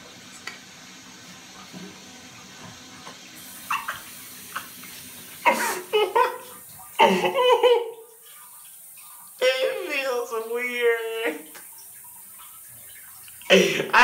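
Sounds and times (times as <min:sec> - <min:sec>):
water spray hissing: 0:03.4 - 0:14.0
man laughing loudly: 0:05.5 - 0:08.0.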